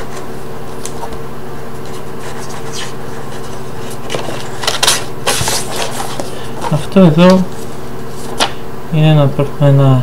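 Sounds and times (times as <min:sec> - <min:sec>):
steady low hum: 0:00.0 - 0:10.0
paper and cardboard rustling: 0:01.8 - 0:08.5.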